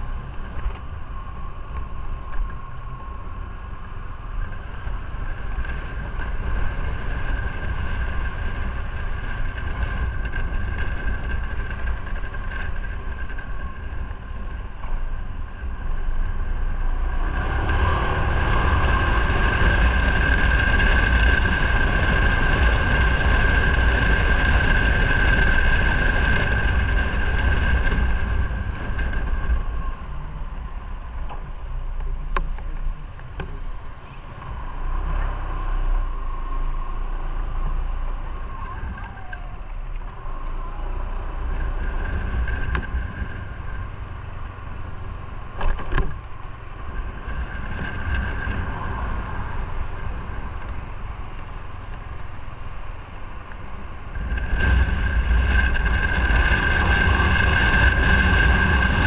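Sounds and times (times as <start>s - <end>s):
motorcycle engine running: 0.0s - 59.0s
wind rushing over microphone: 0.0s - 59.0s.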